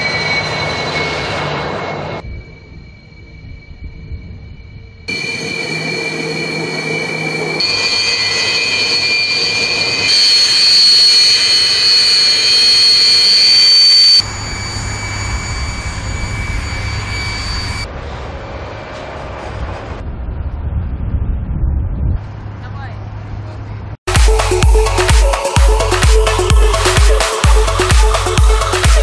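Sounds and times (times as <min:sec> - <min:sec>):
jet engines whining and rushing: 0:05.0 - 0:20.2.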